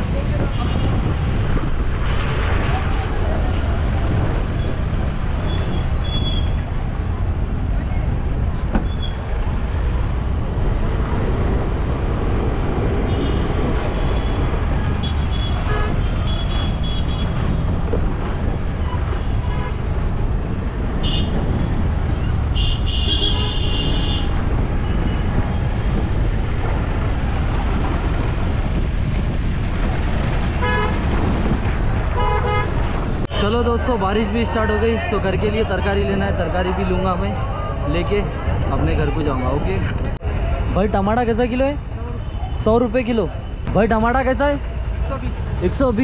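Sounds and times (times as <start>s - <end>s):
engines rumbling in traffic: 0.0s - 46.0s
car horns honking: 21.0s - 21.4s, 22.5s - 24.3s, 30.6s - 31.0s, 32.2s - 32.8s.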